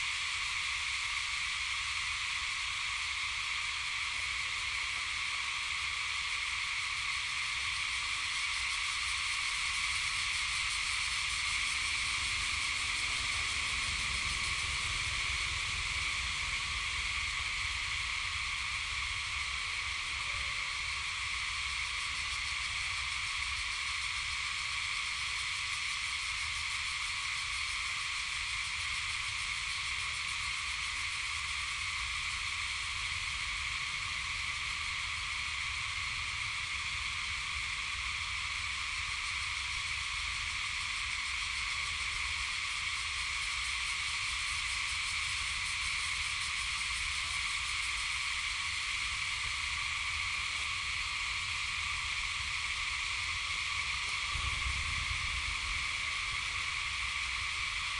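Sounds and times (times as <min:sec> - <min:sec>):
insect chorus drone: 0:00.0 - 0:57.9.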